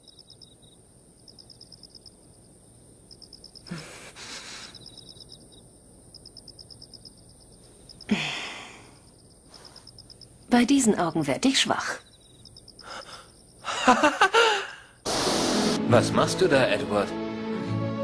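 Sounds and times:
crickets chirping: 0.0 - 15.8
person sighing: 3.7 - 4.8, 8.1 - 9.0, 12.8 - 15.0.

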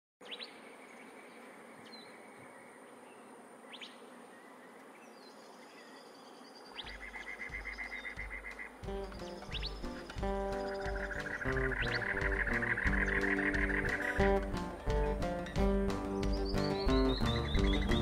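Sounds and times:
bird chirps: 0.2 - 15.0, 15.6 - 18.0
high insect buzz: 0.3 - 18.0
rapid repeated chirping: 6.8 - 15.2, 15.9 - 18.0.

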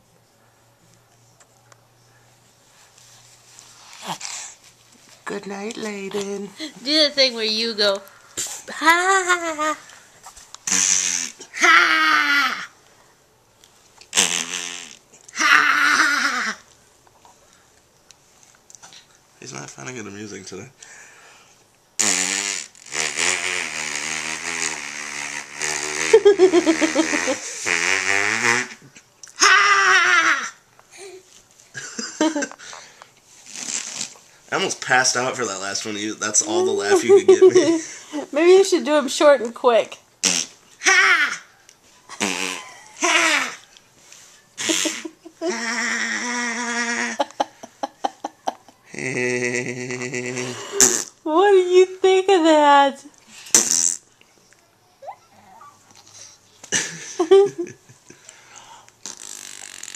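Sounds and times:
person making playful vocal noises: 8.4 - 9.9, 15.3 - 16.6, 23.0 - 27.7, 42.1 - 43.7, 44.6 - 47.7, 48.9 - 51.5
mouth clicks: 10.6 - 11.4, 14.0 - 15.4, 22.0 - 26.2, 40.2 - 40.5, 42.2 - 42.6, 53.4 - 54.6, 58.3 - 59.9
man blowing raspberries: 10.6 - 11.6, 14.1 - 16.6, 22.0 - 30.6, 32.6 - 34.3, 40.2 - 41.0, 42.1 - 43.7, 44.6 - 47.6, 48.9 - 51.2, 53.3 - 54.1, 58.2 - 59.9.

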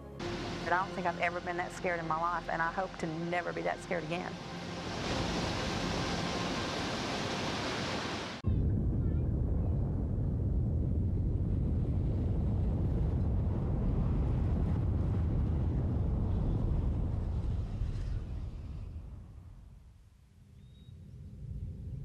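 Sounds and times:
strong wind buffeting microphone: 4.8 - 19.7.

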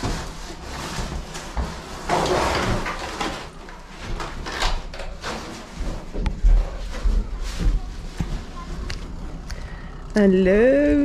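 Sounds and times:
cardboard box rustling and scraping: 0.0 - 4.6.

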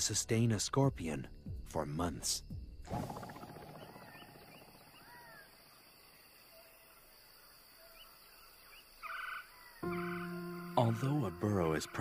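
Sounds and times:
faint bird chirps: 2.8 - 12.0.

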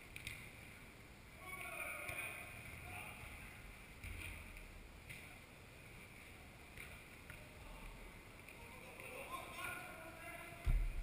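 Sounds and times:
echoing indoor hall ambience: 0.0 - 11.0
soft thuds: 10.6 - 11.0.

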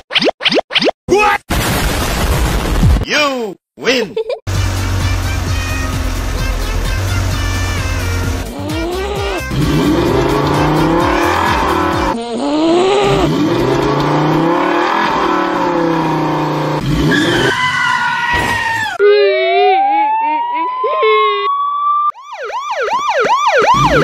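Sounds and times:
music: 4.5 - 12.1
cartoon motorcycle engine revving: 4.5 - 21.0, 23.6 - 24.0.

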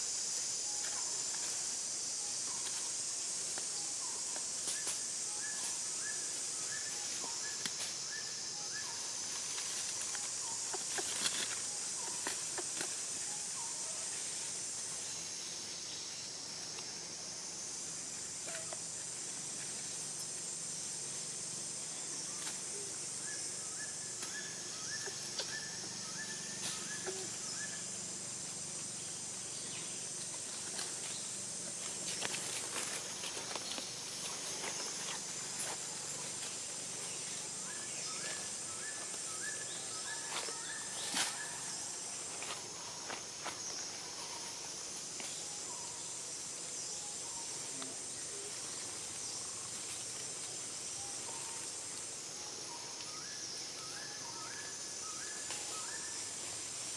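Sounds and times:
insects droning: 0.0 - 56.9
faint rustles and clicks: 9.3 - 13.1.

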